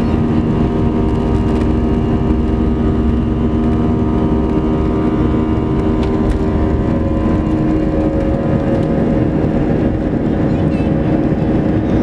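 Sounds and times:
deep rumble of takeoff roll: 0.0s - 12.0s
jet engine buzz-saw drone: 0.0s - 12.0s.

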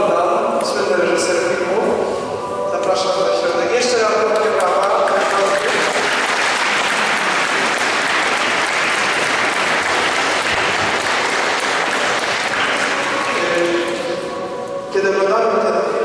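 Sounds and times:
crowd applauding: 4.4s - 14.4s.

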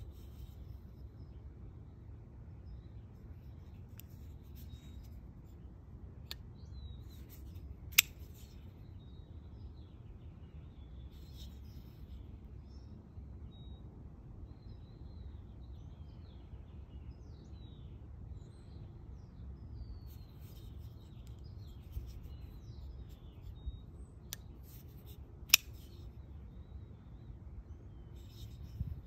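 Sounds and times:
folding knife clicking: 7.2s - 8.6s, 24.3s - 26.0s
knife blade snapping: 25.5s - 26.0s.

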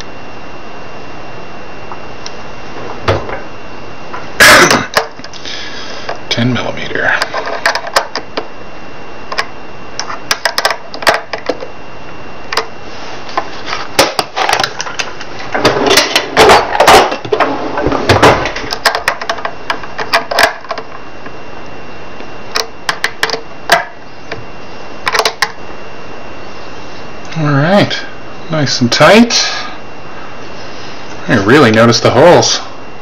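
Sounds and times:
scraping and handling noise: 7.1s - 8.5s, 12.5s - 21.3s.

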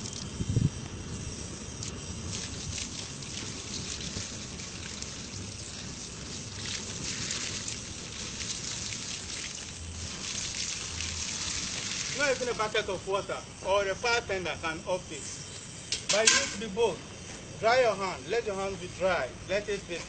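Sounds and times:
burning gas jet hissing: 0.0s - 20.0s
water pouring and splashing: 1.8s - 12.8s.

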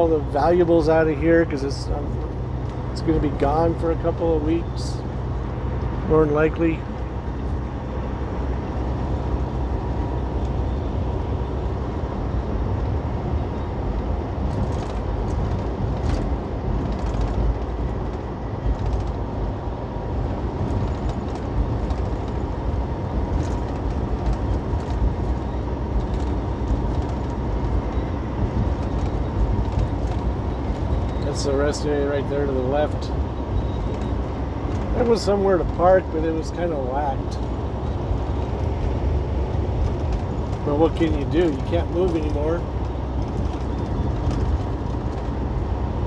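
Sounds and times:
truck engine and road noise: 0.0s - 46.0s
faint clicks and rattles: 14.5s - 19.3s.

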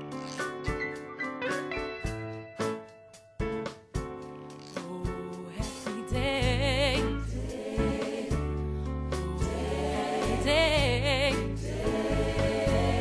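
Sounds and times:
keyboard accompaniment: 0.0s - 13.0s
bass line: 6.2s - 13.0s
gospel choir singing: 7.2s - 13.0s.

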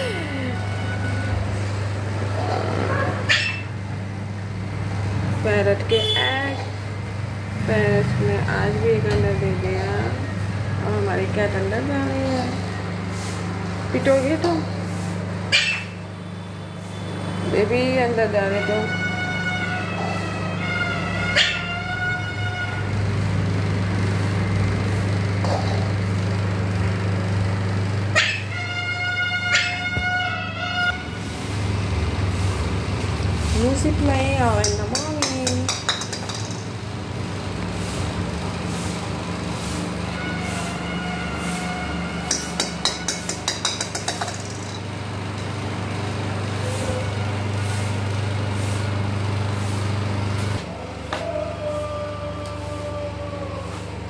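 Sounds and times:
steady low hum: 0.0s - 48.8s
pet animal short sharp call: 21.4s - 21.7s.

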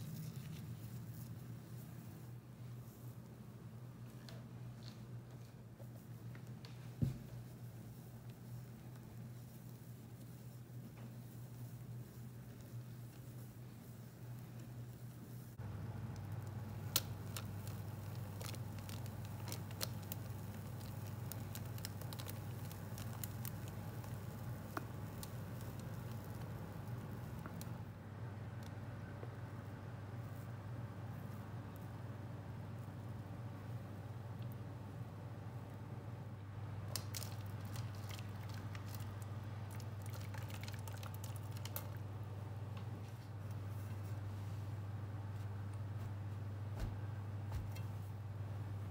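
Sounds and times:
batter pouring with wet pops: 0.0s - 1.6s, 6.4s - 27.8s, 36.8s - 42.1s
steady low hum: 0.0s - 48.9s.

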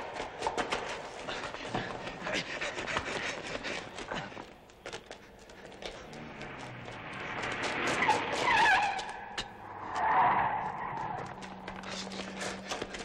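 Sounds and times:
quick footsteps: 0.0s - 13.0s
car tyres squealing: 7.0s - 12.6s.

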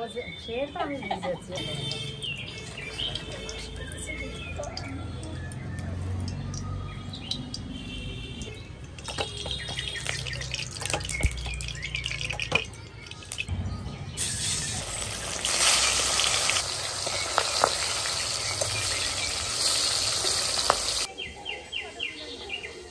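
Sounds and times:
fish sizzling in hot oil: 1.9s - 6.6s, 9.0s - 13.4s, 14.2s - 21.1s
oil trickling into a wok: 2.3s - 13.5s, 14.2s - 21.1s.

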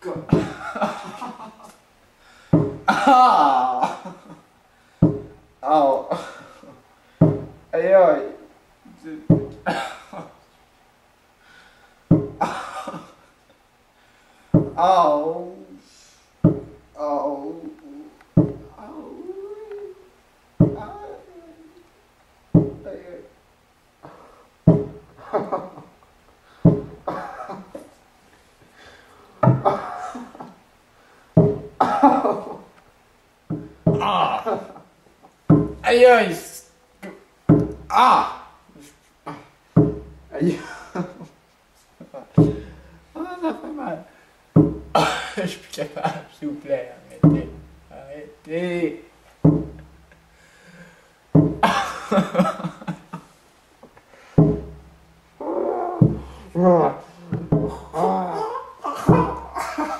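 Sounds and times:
heavy thumps on tabletop: 0.3s - 0.6s, 2.5s - 3.0s, 5.0s - 5.5s, 7.2s - 7.7s, 9.3s - 9.7s, 12.1s - 12.6s, 14.5s - 14.8s, 16.4s - 17.0s, 18.4s - 18.8s, 20.6s - 21.0s, 22.5s - 22.9s, 24.6s - 25.2s, 26.6s - 27.3s, 29.4s - 29.8s, 31.4s - 32.0s, 33.5s - 34.3s, 35.5s - 35.9s, 37.5s - 38.0s, 39.8s - 40.3s, 42.4s - 43.0s, 44.6s - 45.1s, 47.2s - 47.9s, 49.4s - 50.2s, 51.3s - 51.9s, 54.4s - 55.0s, 56.0s - 56.5s, 57.3s - 58.0s, 59.1s - 59.5s
man crying out in pain: 2.9s - 4.1s, 34.0s - 34.8s, 37.9s - 38.6s, 57.6s - 59.7s.

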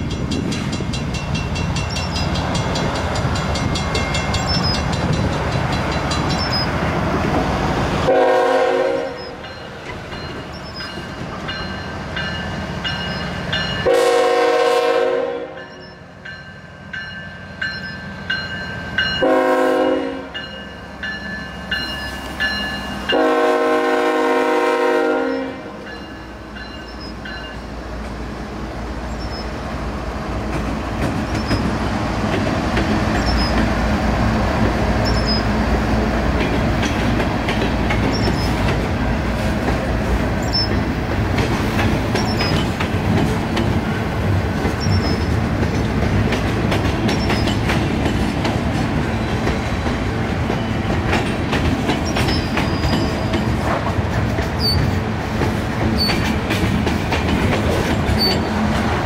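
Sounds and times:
train rumbling past: 0.0s - 59.0s
locomotive horn blasts: 8.1s - 9.4s, 13.8s - 15.6s, 19.2s - 20.4s, 23.1s - 25.8s.

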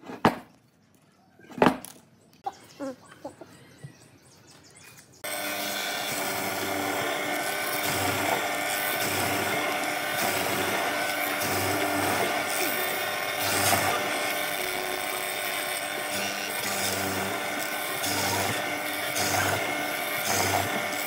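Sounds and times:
woodworking machine cutting wood: 5.2s - 21.0s.

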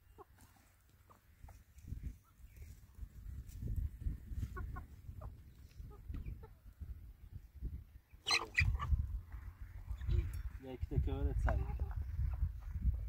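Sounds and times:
chickens clucking: 0.0s - 13.0s
chicken squawk: 8.2s - 9.0s.

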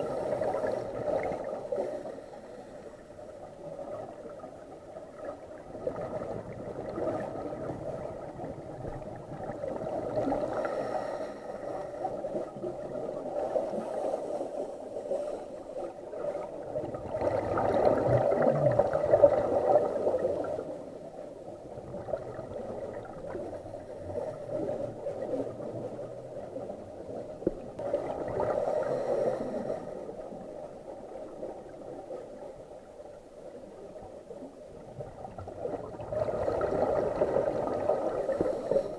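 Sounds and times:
scuba regulator breathing underwater: 10.4s - 12.3s, 28.4s - 30.3s, 38.2s - 38.9s
bubbling of exhaled bubbles: 16.7s - 20.6s.

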